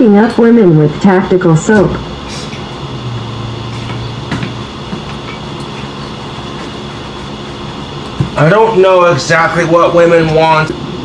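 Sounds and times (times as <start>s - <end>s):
steady mechanical hum: 0.0s - 11.0s
strong low tone: 2.7s - 4.9s.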